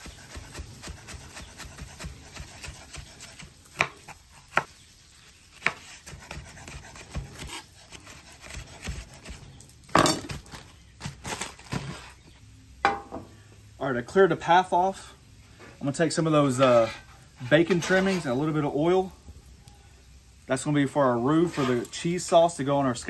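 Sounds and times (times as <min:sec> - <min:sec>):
knife chopping on wooden board: 0:00.0 - 0:04.7, 0:05.6 - 0:10.5.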